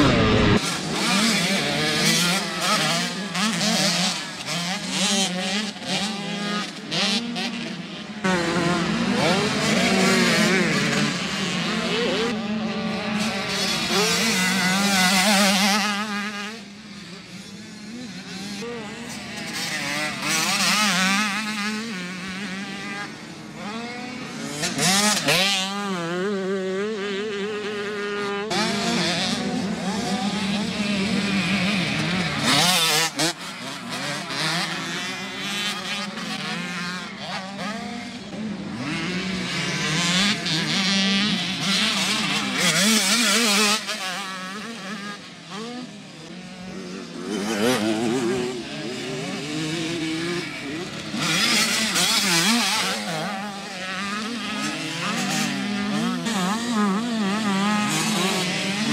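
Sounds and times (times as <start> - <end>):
dirt bike engines revving: 0.0 - 58.9.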